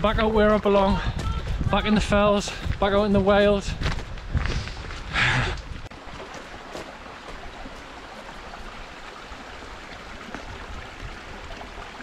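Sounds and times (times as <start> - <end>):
rocky stream rushing: 5.6 - 12.0.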